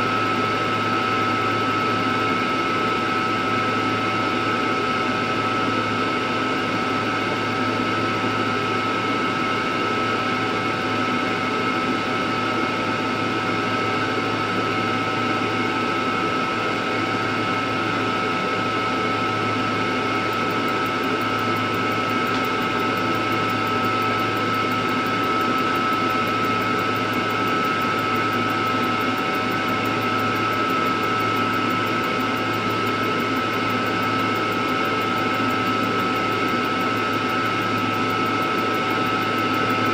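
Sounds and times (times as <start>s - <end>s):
high-pitched machine whine: 0.0s - 39.9s
fan whirring: 19.9s - 39.9s.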